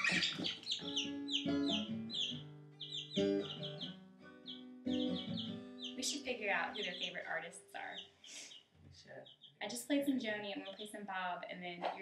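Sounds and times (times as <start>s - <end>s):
acoustic guitar strumming: 0.0s - 7.9s
baby chicks peeping: 0.0s - 11.0s.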